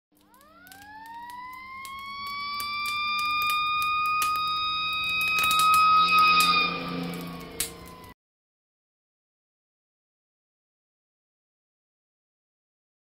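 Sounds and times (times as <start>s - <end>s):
sharp crackles: 0.1s - 8.1s
siren winding up: 0.1s - 8.2s.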